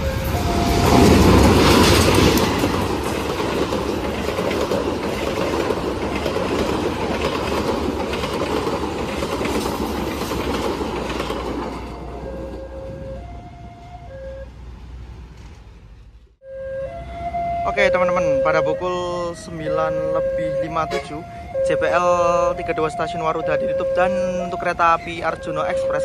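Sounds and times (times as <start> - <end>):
level-crossing alarm: 0.0 - 2.2, 11.6 - 14.5, 16.4 - 26.0
locomotive passing: 0.0 - 26.0
train wheels clattering: 0.4 - 12.6.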